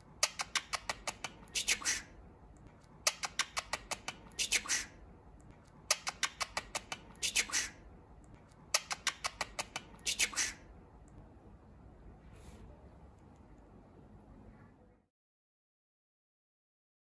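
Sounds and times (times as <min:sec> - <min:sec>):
budgerigar chattering: 0:03.0 - 0:05.0, 0:08.8 - 0:10.6.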